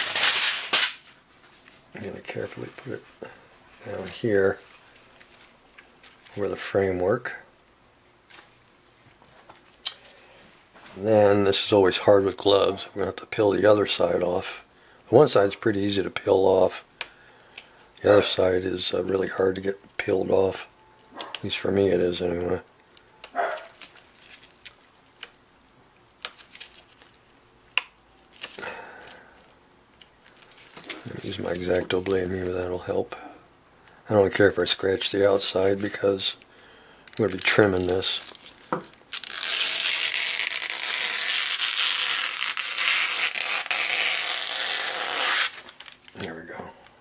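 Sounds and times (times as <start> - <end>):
plastic film clicks and crackles: 22.9 - 25.4, 26.2 - 29.2, 30.0 - 30.9, 37.0 - 44.2, 45.3 - 46.3.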